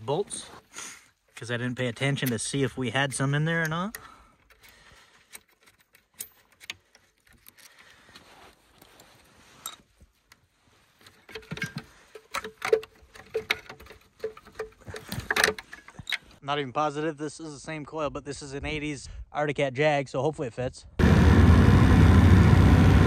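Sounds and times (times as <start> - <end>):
rustling: 4.0 - 16.4.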